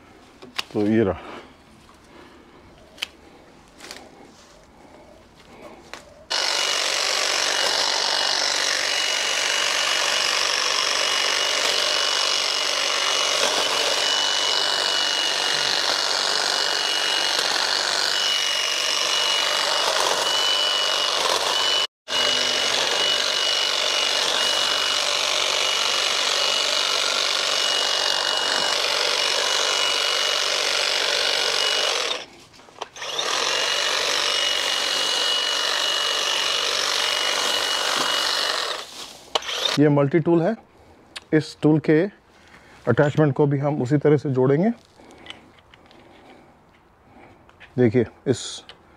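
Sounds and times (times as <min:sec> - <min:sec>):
hedge trimmer buzzing: 0:06.3 - 0:39.8.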